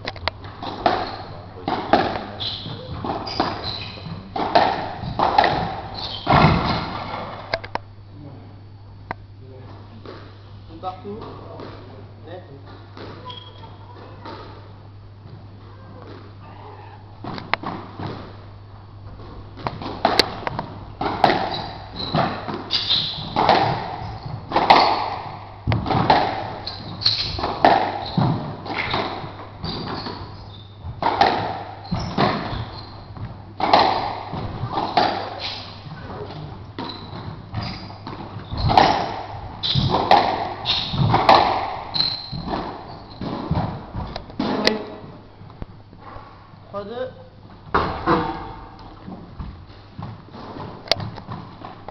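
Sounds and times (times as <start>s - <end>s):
squash ball struck by rackets: 0.5s - 7.4s, 19.6s - 44.9s
ball smacking off court walls: 1.7s - 7.7s, 19.2s - 44.9s, 47.7s - 51.9s.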